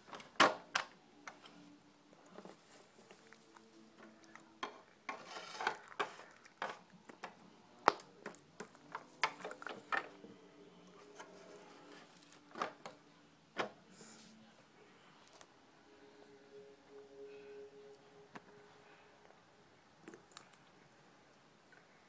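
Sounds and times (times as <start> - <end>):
plastic toy figures clicking and tapping: 4.0 - 10.2.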